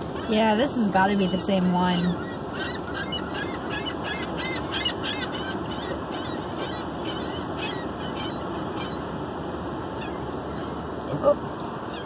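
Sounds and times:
gulls calling: 0:00.0 - 0:12.0.

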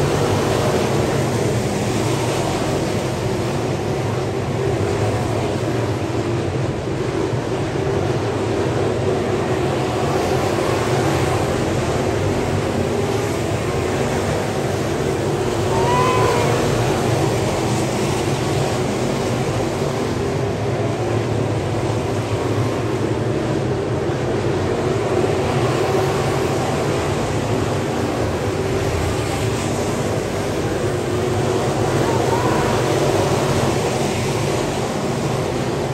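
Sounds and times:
race car engines roaring: 0:00.0 - 0:35.9
short pitched whoop: 0:15.6 - 0:17.4, 0:31.7 - 0:33.7.

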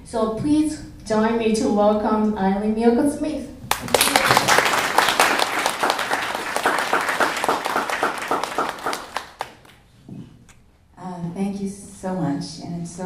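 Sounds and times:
audience applauding: 0:03.7 - 0:09.8.

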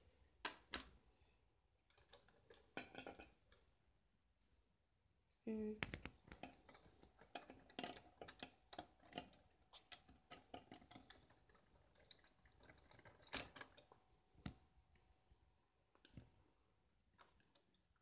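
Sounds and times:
plastic pieces clicking: 0:01.9 - 0:03.7, 0:05.8 - 0:14.6.

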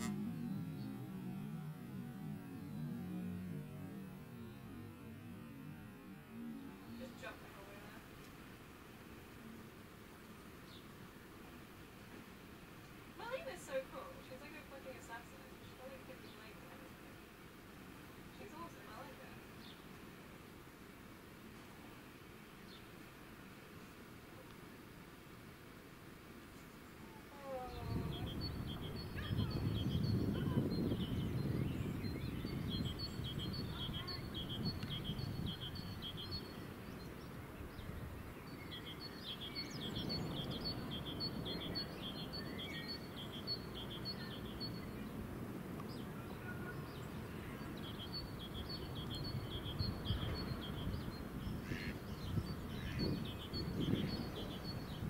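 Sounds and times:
small bird chirping: 0:00.0 - 0:08.1, 0:26.5 - 0:45.2, 0:45.8 - 0:55.0
low background rush: 0:00.0 - 0:55.0.

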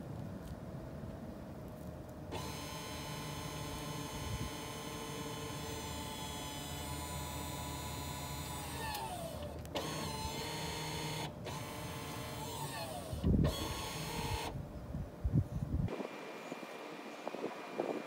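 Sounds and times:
parking brake motor whirring: 0:02.3 - 0:14.6.

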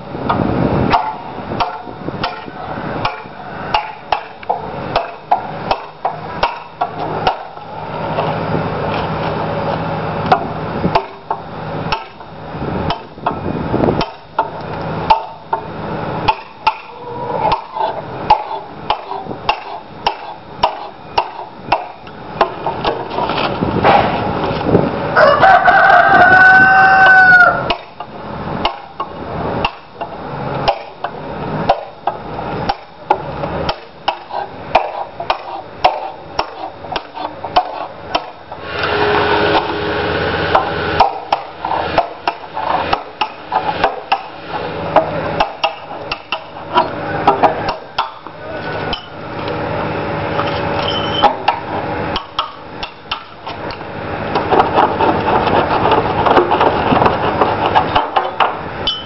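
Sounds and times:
tool chopping slate edge: 0:17.5 - 0:22.5, 0:27.7 - 0:28.0, 0:30.7 - 0:31.0, 0:33.7 - 0:38.4.

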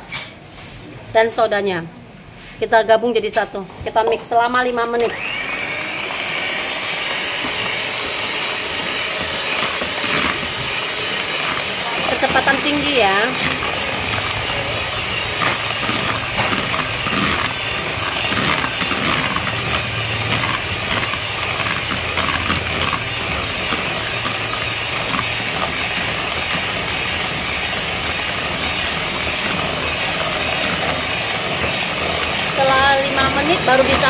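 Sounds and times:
electric hand mixer motor hum: 0:04.8 - 0:34.0
beaters clicking in plastic bowl: 0:07.1 - 0:34.0.

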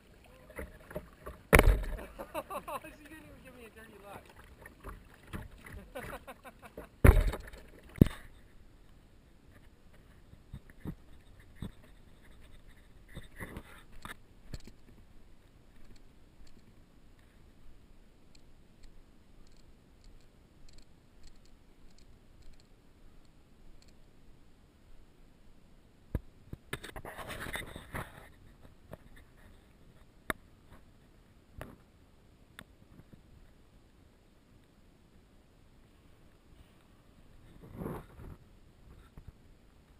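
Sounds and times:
brief rustling scrape: 0:36.6 - 0:39.2.

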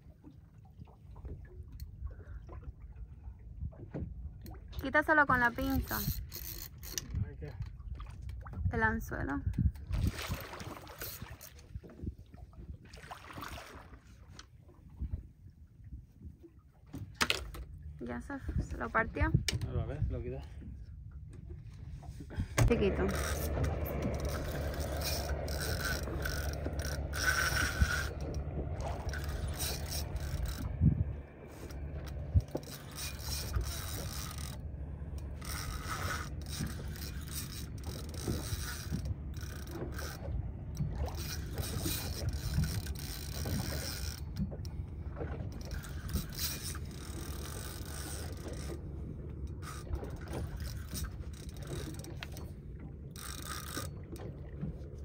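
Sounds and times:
fishing reel whirring and clicking: 0:05.4 - 0:07.2, 0:10.9 - 0:11.7, 0:22.7 - 0:44.9, 0:45.5 - 0:54.7
low steady hum: 0:12.3 - 0:55.0.

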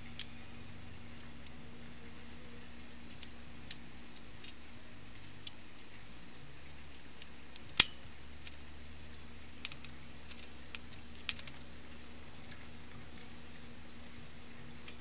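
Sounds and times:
trigger mechanism clicking: 0:07.6 - 0:08.0.

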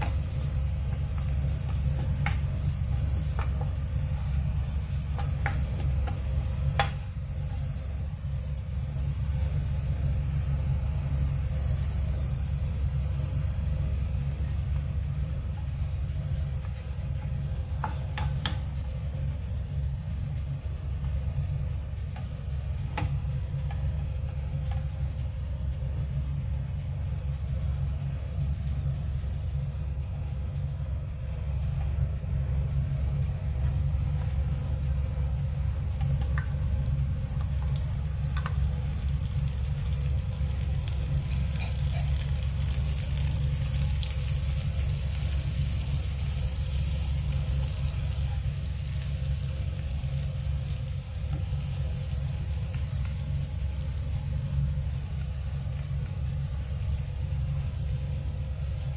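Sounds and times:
low rumble: 0:00.0 - 0:58.9
garlic sizzling in oil: 0:38.6 - 0:58.9.

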